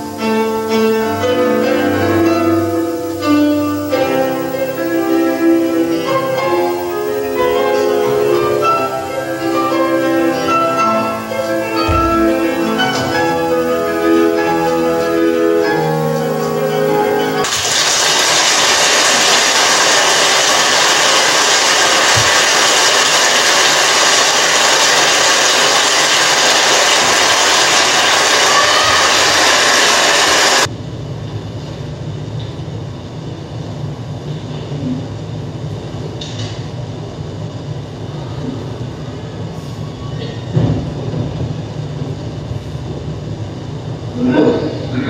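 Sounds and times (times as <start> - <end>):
loud steady hiss: 0.0 - 31.3.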